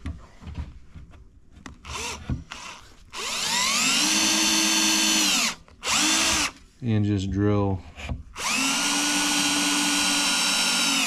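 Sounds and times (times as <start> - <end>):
cordless drill whining: 1.8 - 6.6, 8.4 - 11.0.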